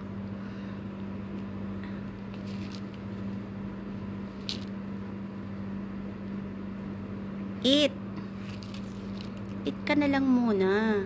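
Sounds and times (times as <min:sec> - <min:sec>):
steady low hum: 0:00.0 - 0:11.0
seed crackling and rustling: 0:02.3 - 0:03.2.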